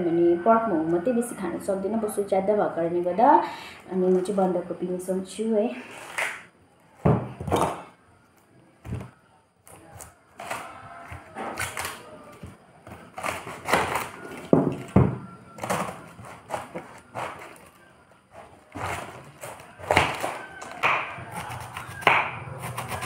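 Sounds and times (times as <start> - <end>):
cabbage leaves tearing: 11.4 - 12.4, 15.6 - 23.0.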